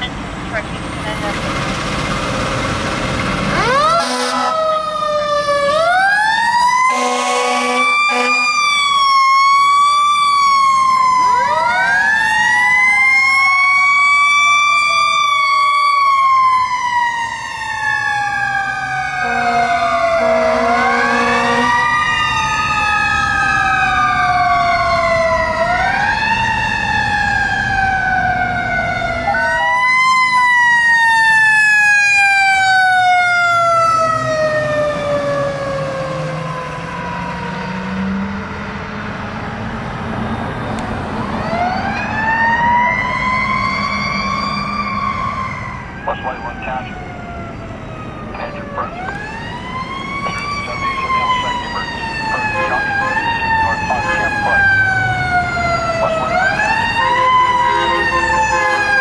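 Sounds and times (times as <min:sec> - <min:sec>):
fire truck siren: 0:00.0 - 0:59.0
air horn blasts: 0:03.9 - 0:04.6, 0:06.9 - 0:08.6, 0:19.2 - 0:21.8, 0:57.0 - 0:59.0.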